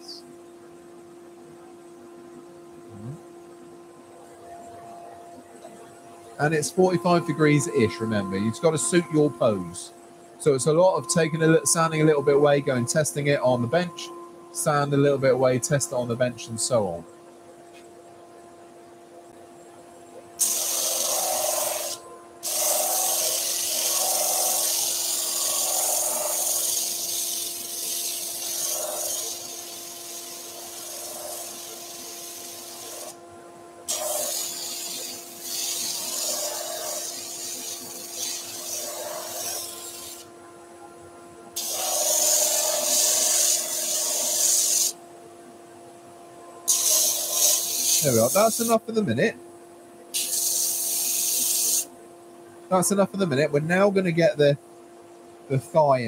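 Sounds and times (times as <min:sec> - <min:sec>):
lathe humming: 0:04.1 - 0:17.1, 0:20.3 - 0:33.3, 0:33.9 - 0:40.5, 0:41.2 - 0:45.0, 0:46.3 - 0:48.9
wood sanding rasping hiss: 0:20.4 - 0:33.2, 0:33.9 - 0:40.3, 0:41.6 - 0:45.0, 0:46.7 - 0:48.9, 0:50.2 - 0:51.9.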